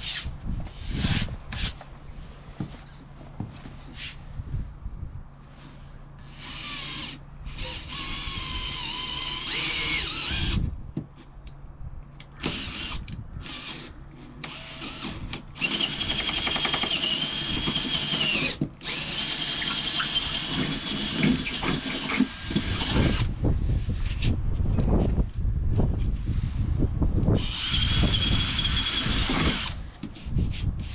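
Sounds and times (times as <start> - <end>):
power drill whining: 6.2 - 10.6, 12.4 - 23.3, 27.4 - 29.8.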